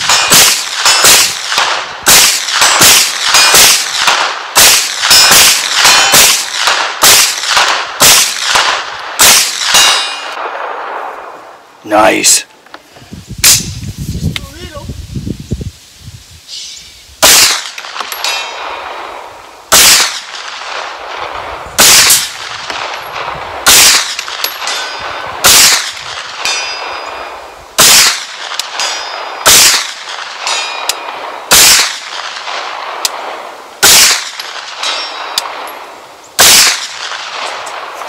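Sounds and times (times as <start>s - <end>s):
carbine gunshots: 0.0s - 11.4s, 17.2s - 38.0s
steel target ringing: 9.3s - 10.4s, 26.4s - 27.4s, 30.5s - 31.7s.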